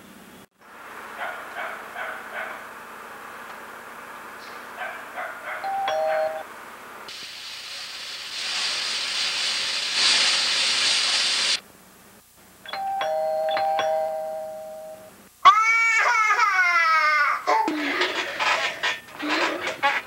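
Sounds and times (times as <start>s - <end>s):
steady hiss: 7.0s - 12.3s
toddler crying: 15.4s - 17.7s.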